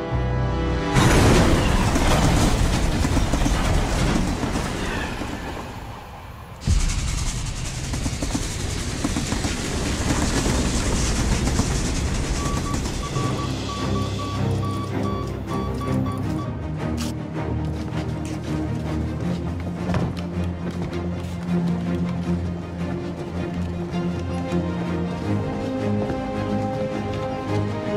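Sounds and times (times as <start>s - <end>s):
train rushing on rails: 0.5s - 16.5s
telegraph beeping: 12.4s - 16.5s.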